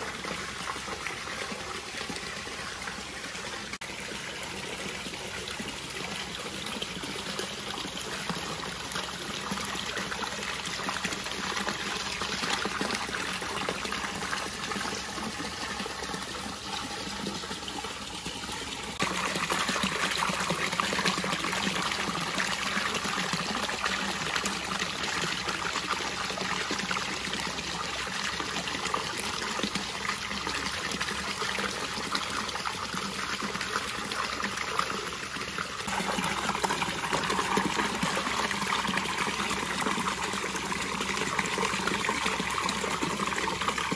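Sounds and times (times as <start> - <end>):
water pouring into bath: 6.7 - 43.9.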